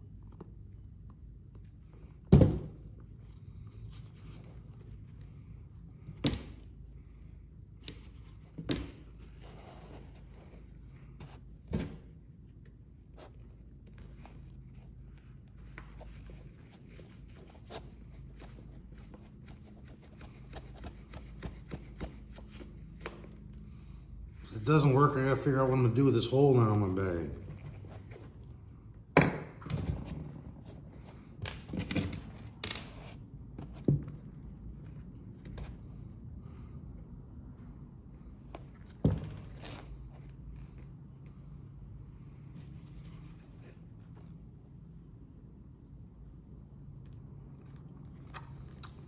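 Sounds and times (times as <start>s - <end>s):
low room hum: 0.0s - 49.0s
light taps and scuffs: 12.6s - 23.5s.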